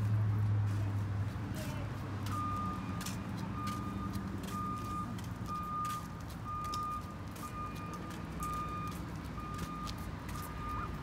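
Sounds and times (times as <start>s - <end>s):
vehicle reversing alarm beeping: 2.2s - 11.0s.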